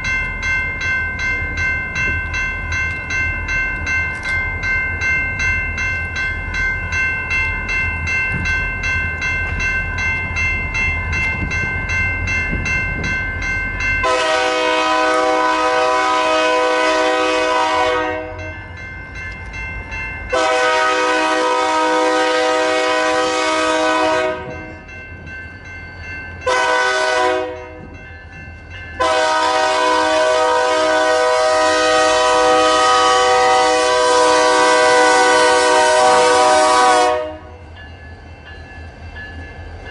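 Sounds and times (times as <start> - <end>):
railroad crossing bell ringing: 0.0 - 39.9
locomotive air horn blasts: 14.0 - 18.5, 20.3 - 24.6, 26.5 - 27.8, 29.0 - 37.6.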